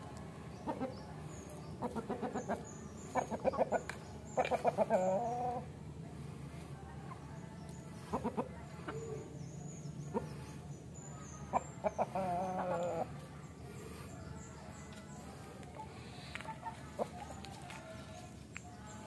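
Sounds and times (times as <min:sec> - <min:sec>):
rooster clucking: 0:01.8 - 0:05.7, 0:11.5 - 0:13.1.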